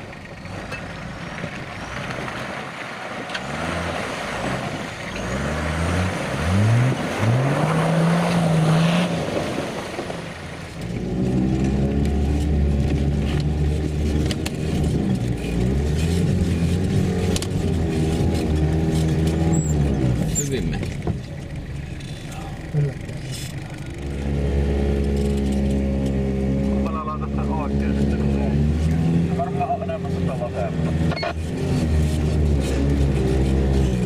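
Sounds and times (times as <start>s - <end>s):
engine revving hard: 3.4s - 14.2s, 23.9s - 34.0s
engine drone inside vehicle cabin: 10.6s - 34.0s.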